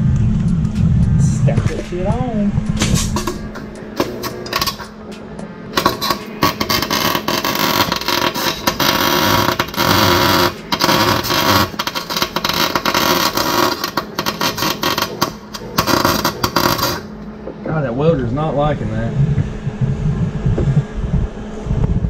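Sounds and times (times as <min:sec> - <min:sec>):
welding arc crackling: 0:01.0 - 0:17.2.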